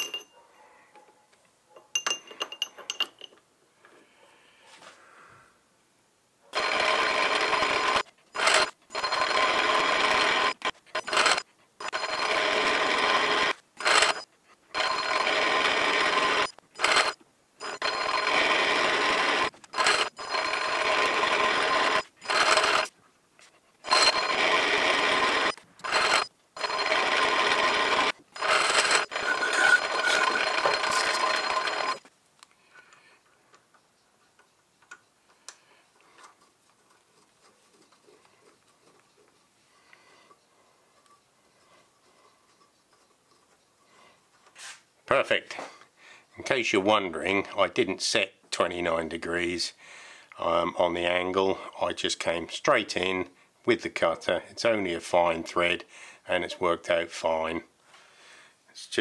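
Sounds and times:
metal lathe whining: 0:06.6 - 0:14.2, 0:14.8 - 0:22.9, 0:23.8 - 0:32.1.

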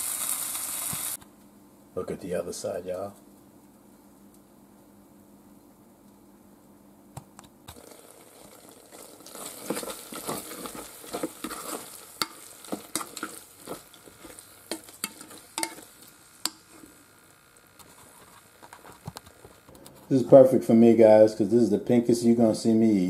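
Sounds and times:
spatula scraping metal pot: 0:09.3 - 0:16.9.

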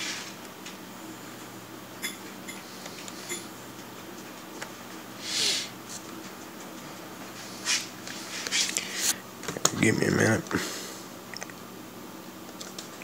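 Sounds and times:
steady low hum: 0:00.0 - 0:13.0
person sniffing: 0:05.2 - 0:05.8.

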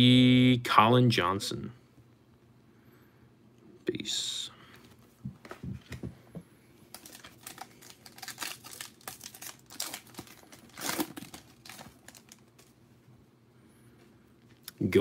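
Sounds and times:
foil wrapper crinkling and tearing: 0:06.9 - 0:12.8.

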